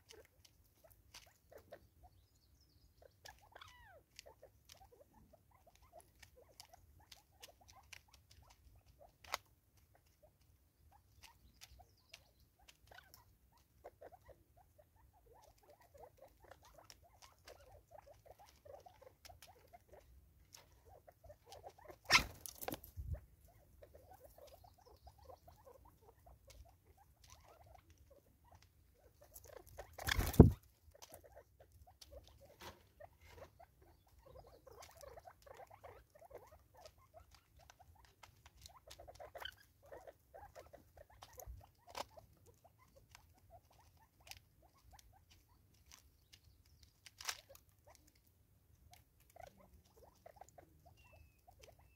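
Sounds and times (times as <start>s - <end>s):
bird pecking at feeder: 0.0s - 51.9s
flurry of movement: 29.9s - 30.6s.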